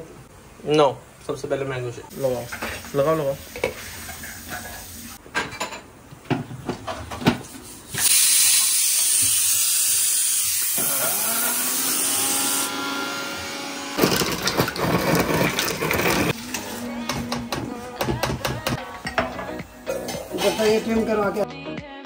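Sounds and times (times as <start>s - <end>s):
electric blender running: 8.9s - 16.4s.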